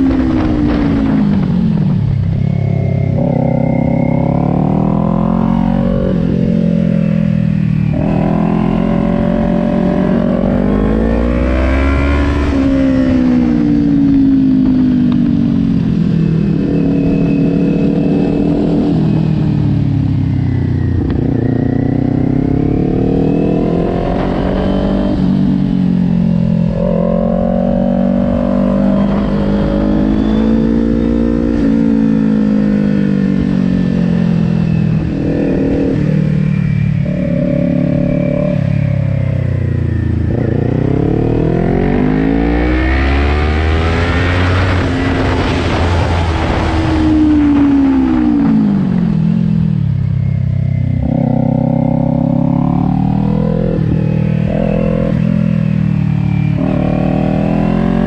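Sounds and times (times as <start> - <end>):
wind rushing over microphone: 0.0 - 22.4, 41.8 - 50.3
motorcycle engine revving: 0.0 - 58.0.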